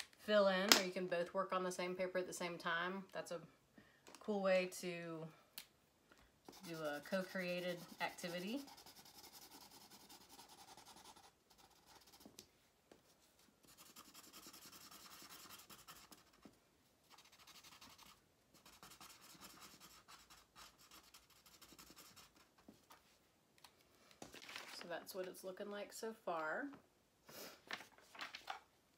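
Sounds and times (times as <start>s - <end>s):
marker scratching on paper: 6.5s - 12.3s, 13.6s - 22.5s.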